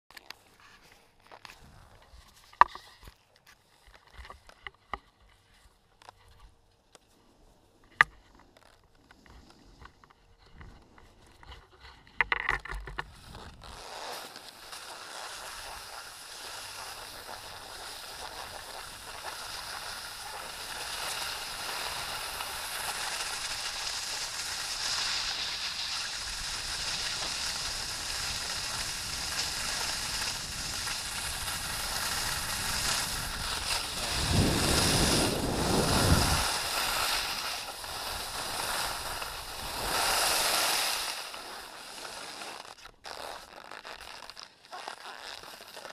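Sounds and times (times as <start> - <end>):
skis hissing over snow: 13.2 - 45.9
wind rushing over camera: 26.1 - 42.0.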